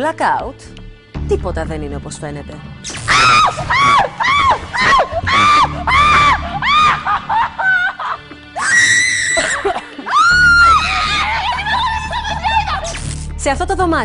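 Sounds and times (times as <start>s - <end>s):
background music: 0.0s - 14.0s
women screaming: 3.1s - 12.9s.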